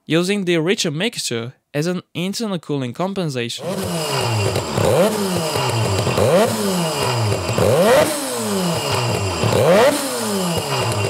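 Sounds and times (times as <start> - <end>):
rotary motorcycle engine revving: 3.6 - 11.0.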